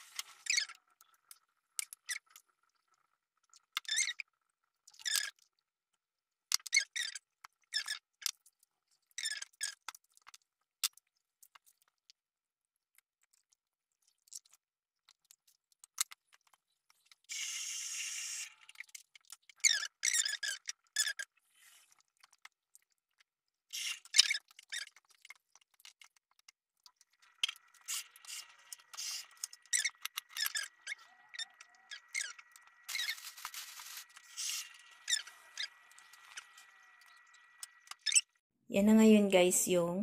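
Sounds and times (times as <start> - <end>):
short squeaks and scrapes: 23.7 - 25.0, 27.3 - 38.4
hissing rustle: 32.9 - 36.5.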